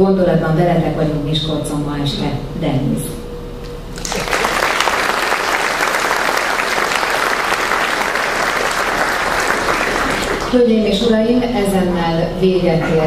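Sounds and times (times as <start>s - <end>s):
audience applauding: 4.0s - 10.5s.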